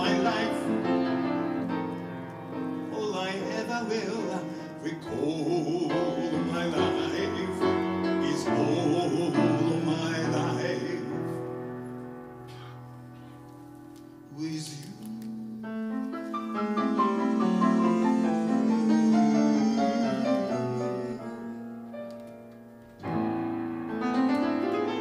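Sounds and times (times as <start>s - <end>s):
man singing a ballad: 0.0s - 1.0s, 2.8s - 11.5s, 14.2s - 21.7s
grand piano: 0.0s - 25.0s.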